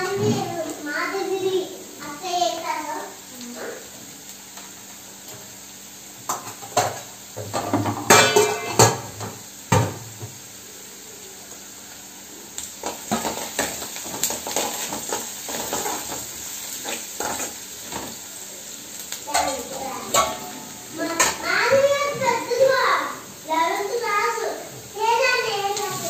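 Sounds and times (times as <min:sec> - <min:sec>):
utensils clanking on metal cookware: 0:00.0 - 0:00.7, 0:06.2 - 0:10.1, 0:12.8 - 0:18.2, 0:19.2 - 0:22.8, 0:23.6 - 0:26.0
spatula scraping in a pan: 0:12.8 - 0:18.2.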